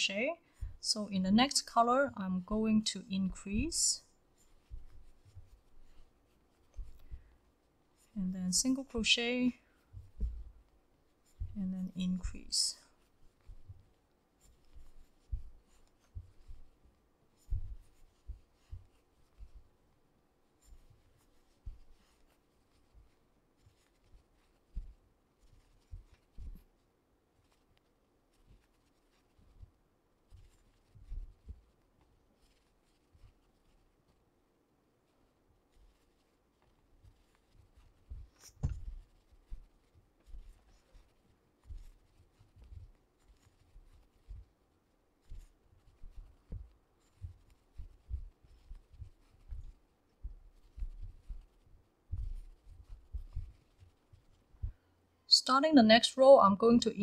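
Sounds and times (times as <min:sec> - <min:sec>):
soft low bumps: 0:00.0 - 0:26.8, 0:37.0 - 0:54.9
crochet hook scratching yarn: 0:00.0 - 0:34.3, 0:35.0 - 0:57.0
dull bumps: 0:38.1 - 0:39.7.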